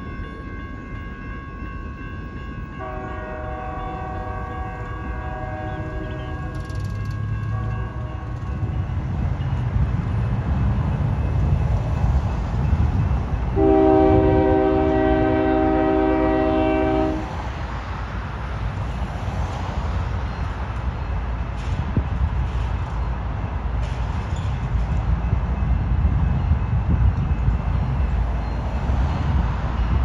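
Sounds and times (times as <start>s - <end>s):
freight train rumble: 0.0s - 30.0s
locomotive horn: 2.8s - 8.6s, 13.5s - 17.4s.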